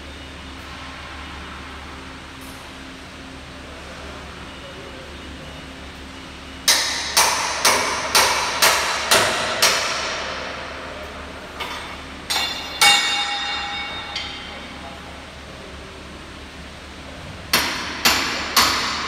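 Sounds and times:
hammer striking steel: 6.7 - 10.6, 11.6 - 14.8, 17.5 - 19.0.

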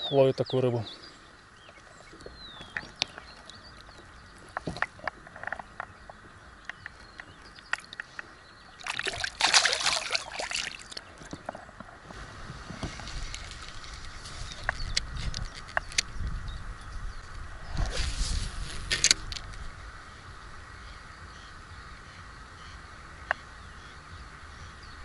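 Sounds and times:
water splashing and sloshing: 1.8 - 15.3.

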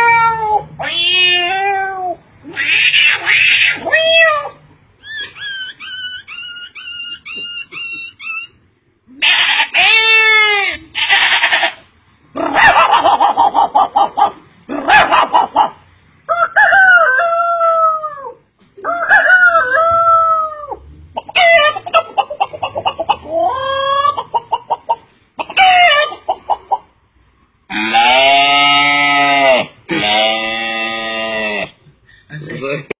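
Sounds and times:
man imitating animal calls: 27.7 - 31.9.

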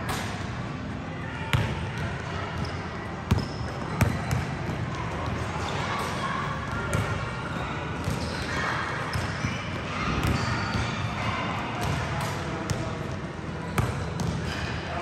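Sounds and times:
indistinct chatter of players: 0.0 - 15.0
basketballs bouncing on a court: 1.5 - 5.8, 6.6 - 7.3, 8.0 - 11.2, 11.8 - 12.9, 13.7 - 14.6.

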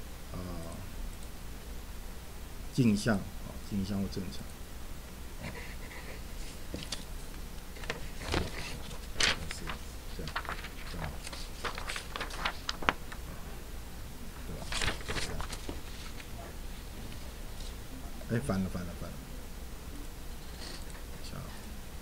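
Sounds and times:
paper rustling on wooden desk: 6.4 - 13.4, 14.6 - 16.3.

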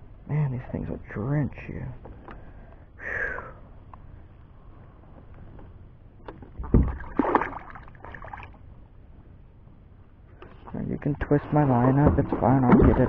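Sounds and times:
fish splashing in water: 6.6 - 8.6, 11.5 - 13.0.

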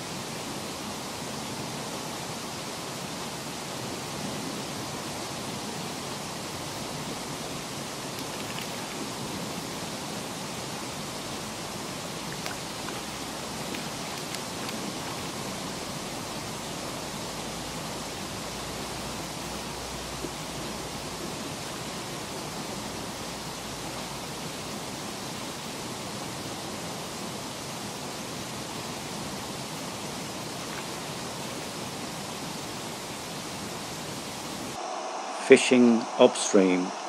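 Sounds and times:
flowing river water: 0.0 - 34.8
faint ticks: 12.3 - 14.8.

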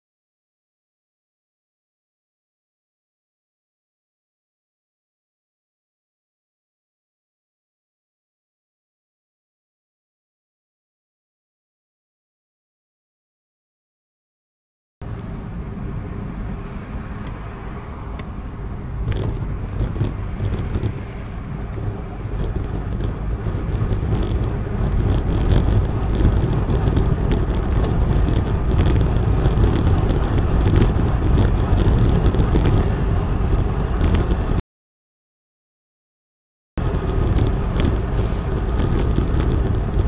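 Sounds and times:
bicycle tyre road rumble: 15.0 - 34.6, 36.8 - 40.0
wind buffeting microphone: 15.1 - 34.6, 36.8 - 40.0
light rattles and ticks: 19.0 - 34.6, 36.8 - 40.0.

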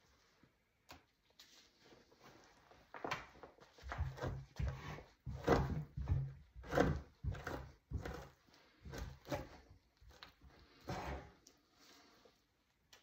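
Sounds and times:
knife scraping hide: 4.0 - 12.1.

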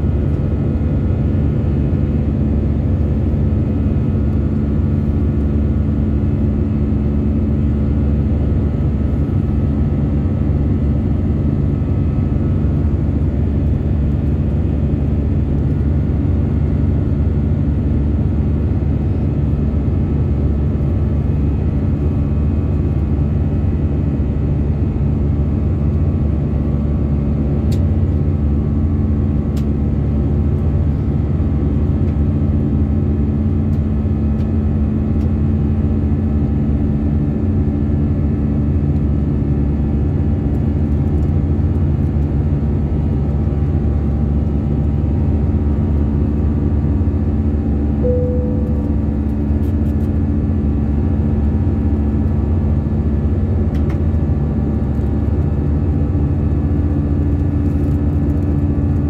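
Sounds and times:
airliner cabin roar: 0.0 - 59.0
steady low hum: 0.0 - 59.0
short tone: 48.0 - 49.6.

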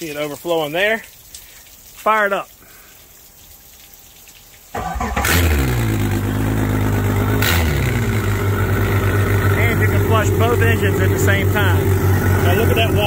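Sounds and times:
outboard engine cranking and running: 4.8 - 13.0.

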